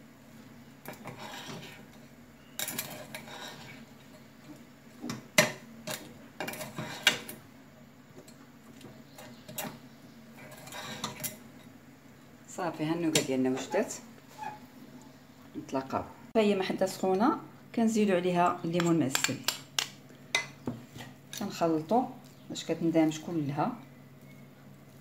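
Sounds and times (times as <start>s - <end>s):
metal utensil scraping a pot: 0.9s - 1.9s, 2.6s - 3.9s, 5.9s - 7.3s, 10.4s - 11.4s.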